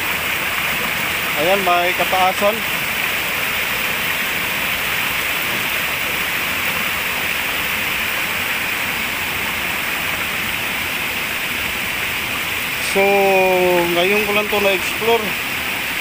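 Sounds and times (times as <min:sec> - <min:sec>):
stream rushing over boulders: 0:00.0 - 0:16.0.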